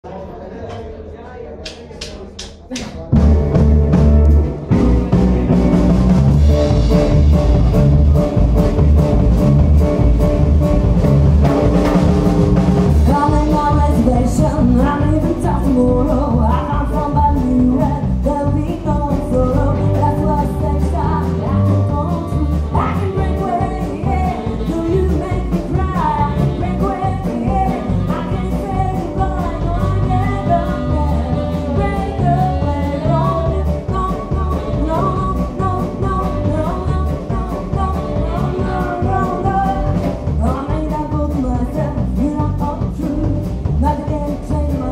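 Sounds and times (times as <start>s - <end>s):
drum kit beat: 2.4s - 44.9s
electric guitars: 3.1s - 44.9s
woman singing lead vocal: 12.9s - 44.9s
saxophone: 21.0s - 40.8s.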